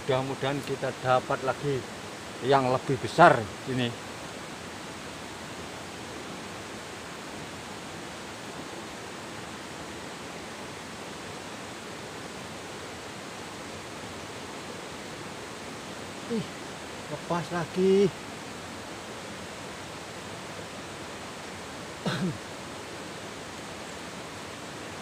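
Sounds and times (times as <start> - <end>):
river rushing over rocks: 0.0 - 25.0.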